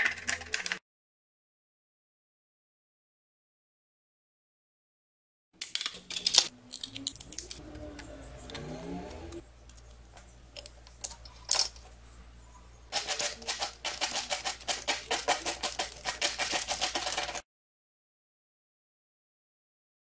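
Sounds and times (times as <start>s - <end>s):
metal rubbed on sandpaper: 12.9s - 17.4s.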